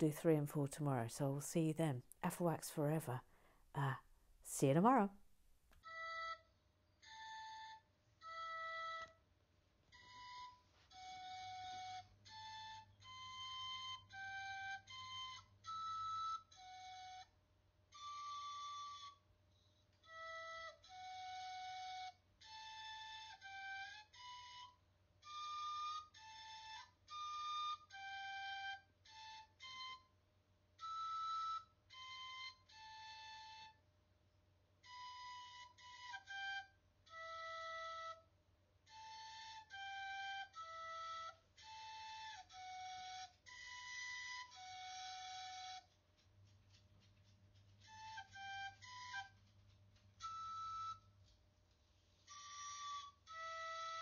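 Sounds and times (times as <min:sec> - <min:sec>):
flute-like solo melody: 0:05.8 - 0:09.2, 0:09.9 - 0:19.2, 0:20.0 - 0:30.2, 0:30.8 - 0:33.8, 0:34.8 - 0:38.3, 0:38.9 - 0:46.0, 0:47.8 - 0:49.4, 0:50.1 - 0:51.2, 0:52.3 - 0:54.0.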